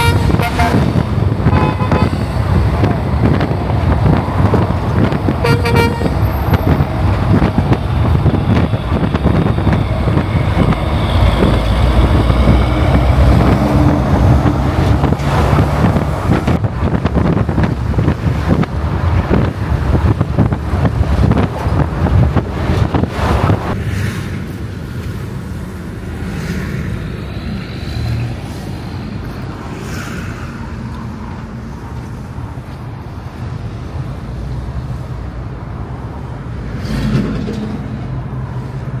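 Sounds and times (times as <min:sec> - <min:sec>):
truck horn toot: 0:00.0 - 0:02.4, 0:05.4 - 0:06.4
diesel trucks passing: 0:00.0 - 0:39.0.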